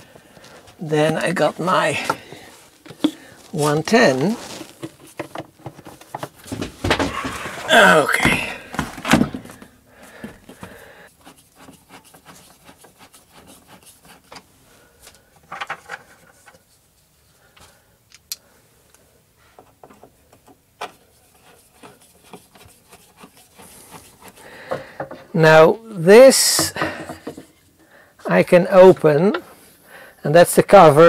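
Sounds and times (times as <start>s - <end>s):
faint handling rubbing: 0.0s - 10.8s.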